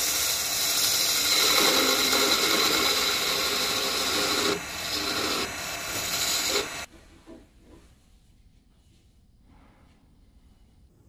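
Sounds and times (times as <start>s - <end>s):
lathe tool scraping wood: 0.0s - 6.9s.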